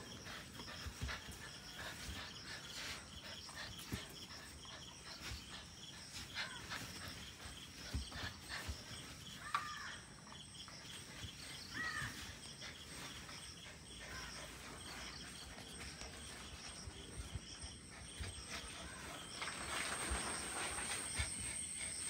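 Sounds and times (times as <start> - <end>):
puppy scuffling and thumping: 0.0 - 9.8, 10.6 - 22.0
insects buzzing: 0.0 - 22.0.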